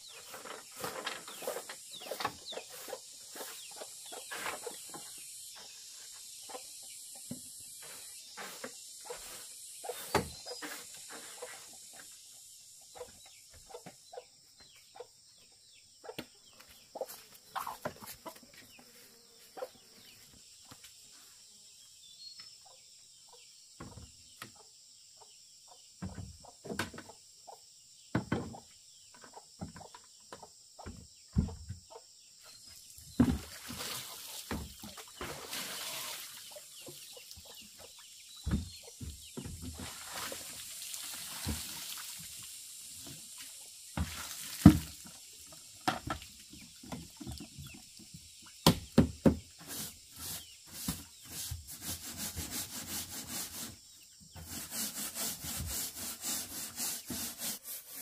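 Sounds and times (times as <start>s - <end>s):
chickens clucking: 0.2s - 7.3s, 12.8s - 18.9s.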